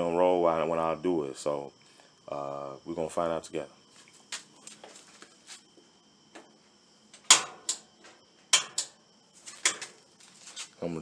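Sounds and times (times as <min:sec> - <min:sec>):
dryer door clicks and knocks: 0:07.2 - 0:07.9, 0:08.6 - 0:09.0.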